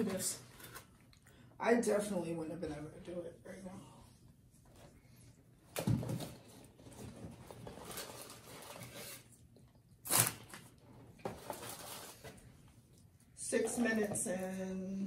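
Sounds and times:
paper wrappers crinkling: 6.8 - 9.3, 10.1 - 12.4.

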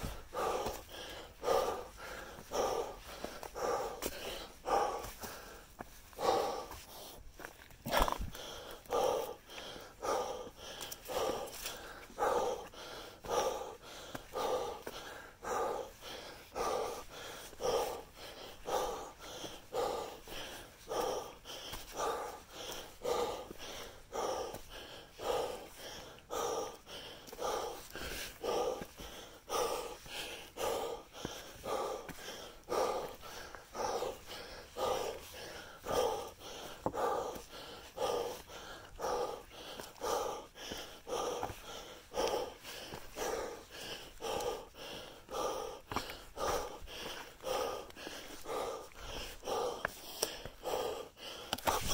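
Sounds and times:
heavy rhythmic breathing: 0.0 - 51.9.

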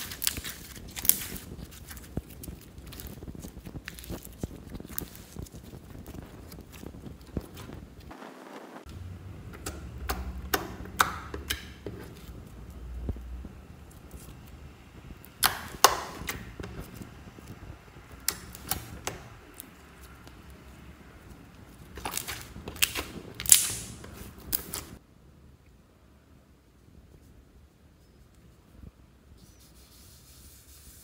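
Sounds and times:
slime clicking and popping: 15.2 - 16.9.

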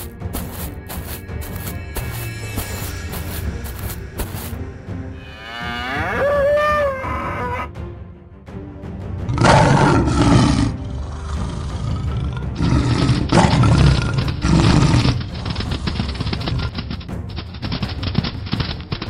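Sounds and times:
background music: 0.0 - 19.0
tiger roar: 9.3 - 16.9.

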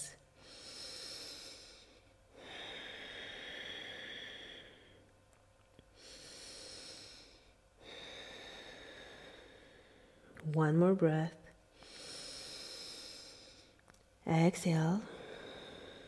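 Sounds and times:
person breathing slowly: 0.4 - 5.1, 5.9 - 10.3, 11.7 - 13.9, 15.0 - 16.0.

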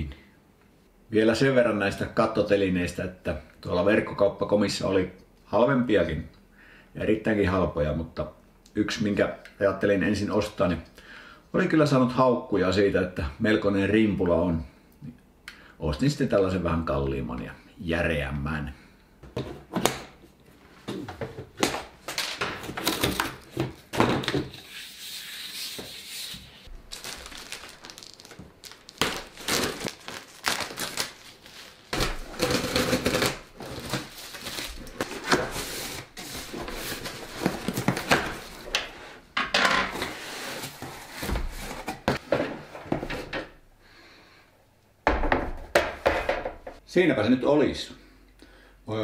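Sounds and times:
cardboard flaps rustling and scraping: 29.3 - 38.8, 39.9 - 43.4
scissors cutting packing tape: 32.0 - 34.0.

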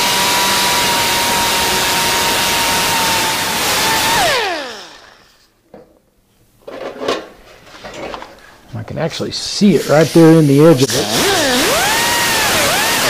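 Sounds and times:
pneumatic grinder whine: 0.0 - 5.5, 9.9 - 13.0
air exhaust hiss: 8.4 - 11.6.

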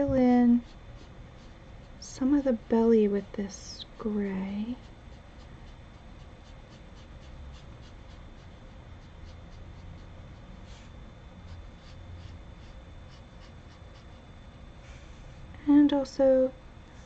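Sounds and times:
marker scratching on paper: 4.0 - 10.9.

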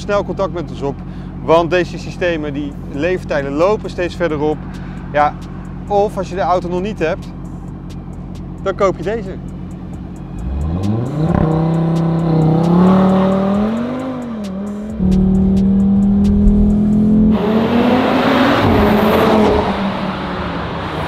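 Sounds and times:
car engine revving: 9.4 - 21.0
loud rushing noise: 14.9 - 20.5.

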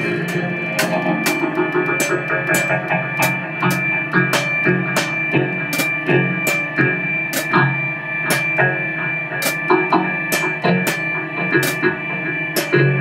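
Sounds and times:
bass guitar: 0.0 - 13.0
drum kit with cymbal strikes: 0.0 - 13.0
electric guitar: 0.0 - 13.0
steady high held tone: 0.0 - 13.0.

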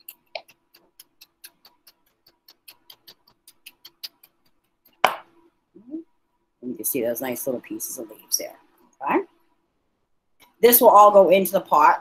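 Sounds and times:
knife chopping on cutting board: 5.0 - 5.3.

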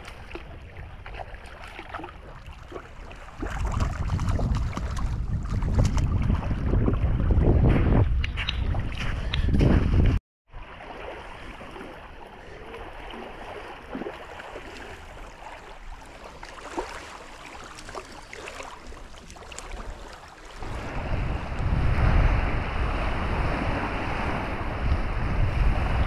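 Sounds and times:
wind rumbling on microphone: 2.0 - 10.2, 18.9 - 26.0
lakeside ambience hiss: 10.7 - 25.2.

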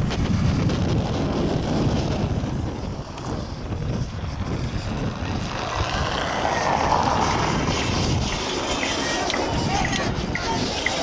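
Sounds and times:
street noise: 0.0 - 11.0
wind rumbling on microphone: 0.0 - 11.0.

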